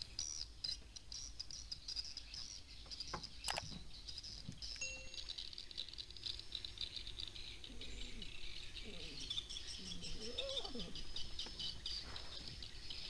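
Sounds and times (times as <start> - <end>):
night insects chirping: 3.5 - 13.0.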